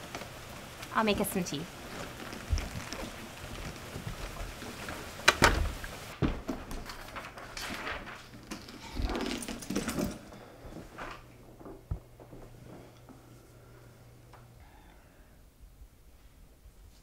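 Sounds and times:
papers rustling: 0.0 - 12.8
wooden door knocking shut: 5.3 - 6.5.

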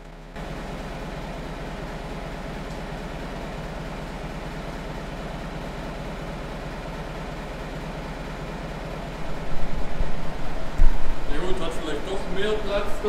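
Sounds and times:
tractor diesel engine running: 0.0 - 13.0
loud knocks: 9.3 - 11.3.

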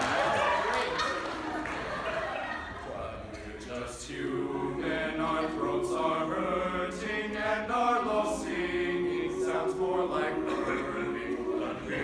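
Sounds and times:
male choir singing in harmony: 3.0 - 12.0.

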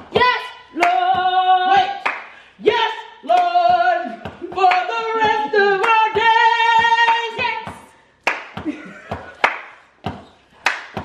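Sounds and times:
woman singing gospel song: 0.0 - 8.1
hand claps: 0.8 - 1.3, 1.9 - 2.4, 3.3 - 11.0.

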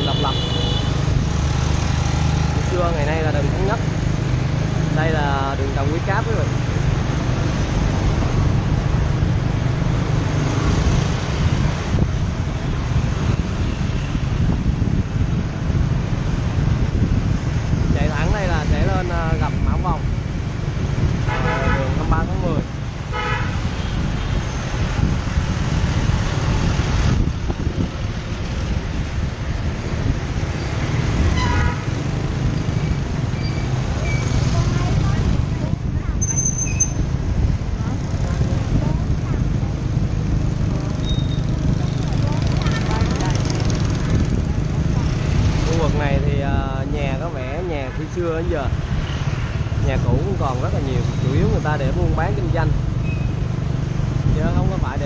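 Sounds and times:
light street traffic: 0.0 - 55.0
wind rumble on microphone: 0.9 - 55.0
motorbike engine hum: 22.0 - 46.4.

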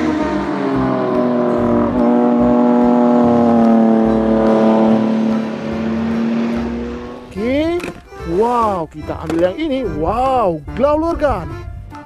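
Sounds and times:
race car engine at high revs: 0.0 - 7.4.

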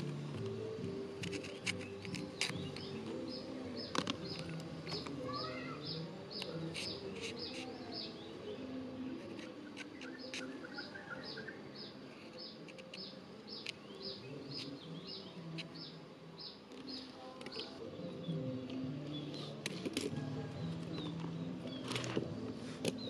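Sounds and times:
small bird chirping: 1.2 - 19.6.

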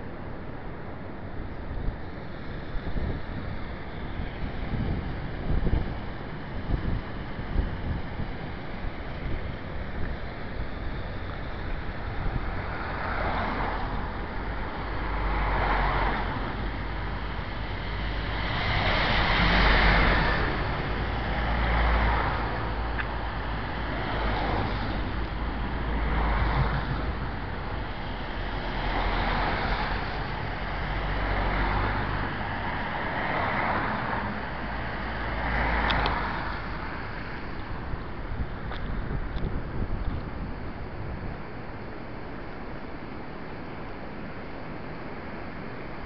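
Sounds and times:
wind buffeting microphone: 0.0 - 42.2
floodwater rushing: 12.1 - 37.9.

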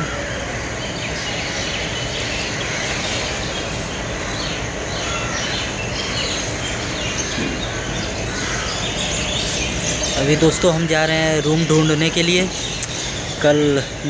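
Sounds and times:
birds chirping faintly: 0.0 - 14.0.

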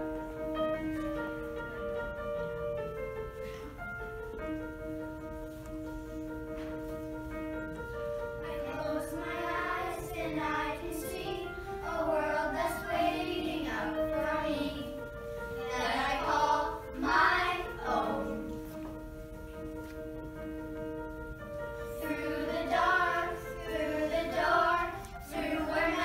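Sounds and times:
held accompaniment notes: 0.0 - 26.0
children's choir singing: 8.2 - 18.9, 21.8 - 26.0.

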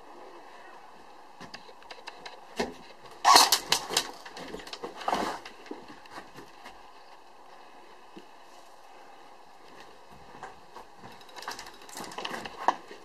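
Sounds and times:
airsoft gunshots: 3.2 - 4.0.

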